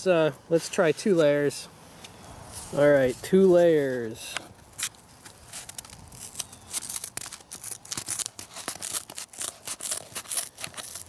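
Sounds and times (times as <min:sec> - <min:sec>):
scissors snipping cardboard: 0:05.6 - 0:11.0.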